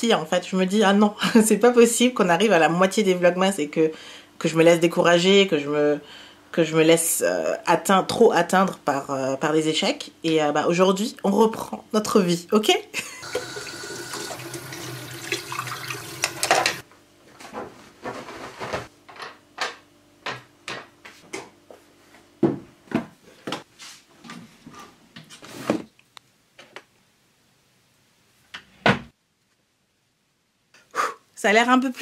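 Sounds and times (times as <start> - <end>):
dishes being rinsed: 13.2 - 16.8
tap running into sink: 13.2 - 16.8.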